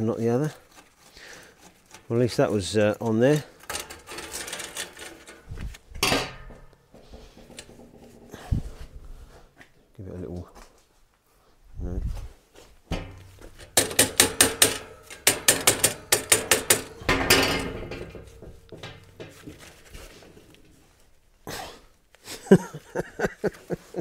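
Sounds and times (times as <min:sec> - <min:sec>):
metallic knocks and rattles: 0:03.5 - 0:08.8, 0:12.9 - 0:21.1.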